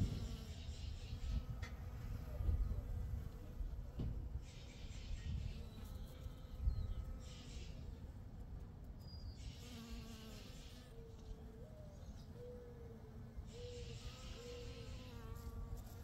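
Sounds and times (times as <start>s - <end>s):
honeybee buzzing: 9.5s - 11.0s, 12.8s - 16.0s.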